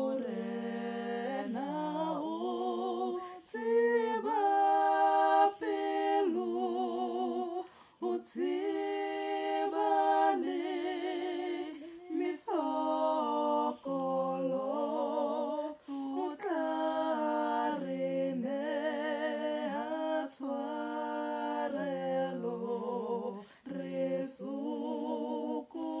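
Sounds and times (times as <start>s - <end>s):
woman singing a cappella: 0.0s - 26.0s
breaths between phrases: 3.2s - 3.5s, 7.6s - 8.0s, 15.7s - 16.1s, 23.4s - 23.7s.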